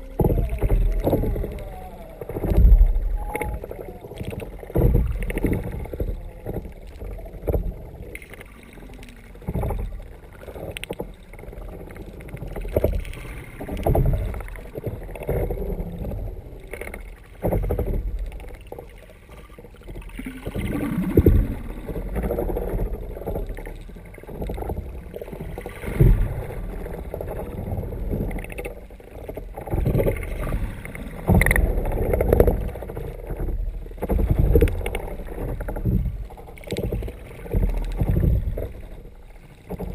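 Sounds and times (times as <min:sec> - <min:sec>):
muffled water washing against kayak: 0:00.0 - 0:39.9.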